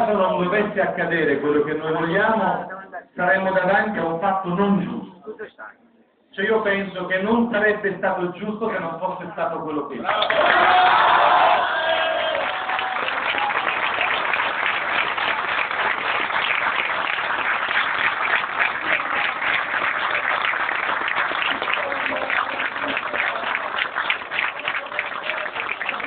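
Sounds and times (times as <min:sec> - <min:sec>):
crowd applauding: 0:10.0 - 0:26.0.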